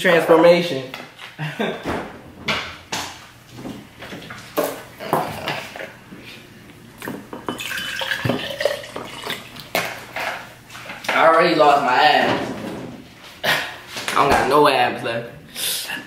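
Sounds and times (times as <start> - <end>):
bottle and glass clinking: 7.1 - 9.4
juice pouring into glass: 7.5 - 9.7.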